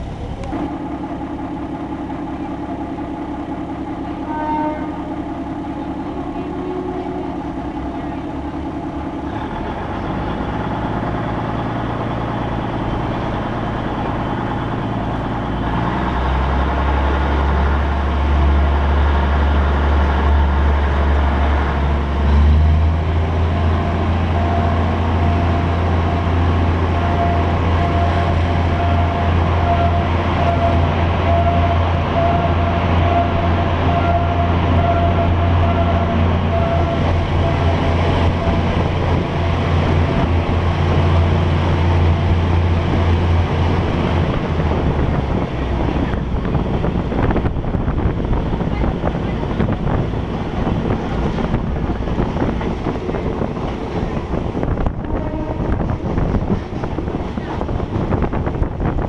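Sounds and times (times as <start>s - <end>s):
diesel train engine drone: 0.0s - 59.0s
level crossing warning tone: 23.5s - 42.6s.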